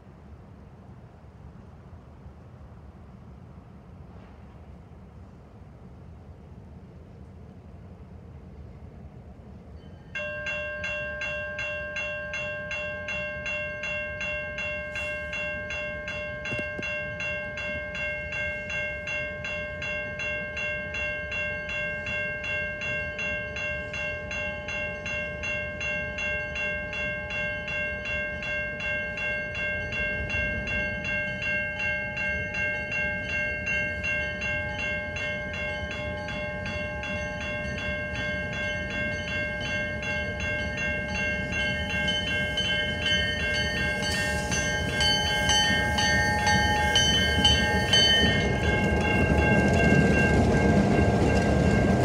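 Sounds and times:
level crossing bell ringing: 0:10.2 - 0:52.0
diesel locomotive rumble: 0:32.1 - 0:52.0.

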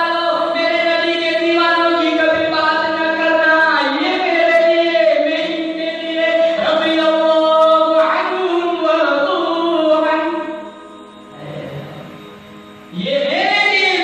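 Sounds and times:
men singing unaccompanied: 0:00.0 - 0:10.5.

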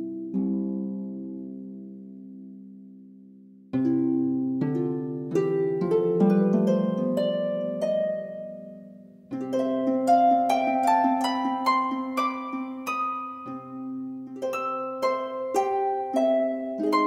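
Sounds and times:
plucked string melody: 0:03.7 - 0:17.0.

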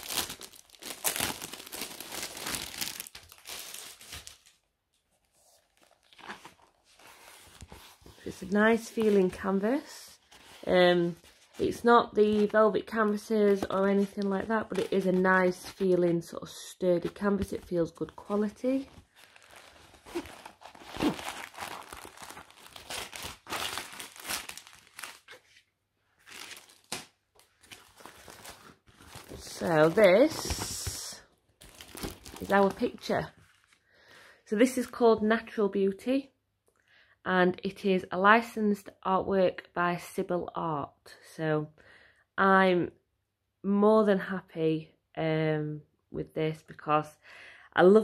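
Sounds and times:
plastic packaging crinkling: 0:00.0 - 0:04.7, 0:18.1 - 0:25.5, 0:26.2 - 0:31.0, 0:31.6 - 0:33.8
canvas rustling: 0:18.6 - 0:25.4.

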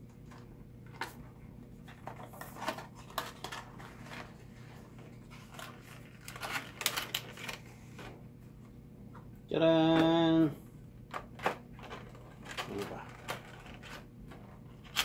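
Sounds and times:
cardboard and plastic packaging handled: 0:00.2 - 0:08.2, 0:11.1 - 0:15.0.

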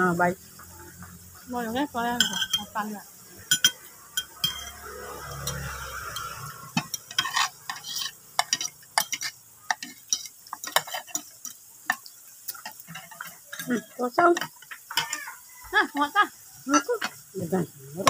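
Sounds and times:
cutlery clinking on a plate: 0:02.2 - 0:02.7, 0:03.5 - 0:15.3.

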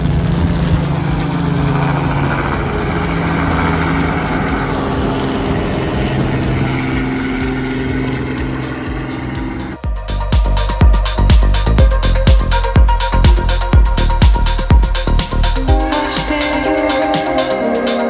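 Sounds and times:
helicopter flying past: 0:00.0 - 0:09.8.

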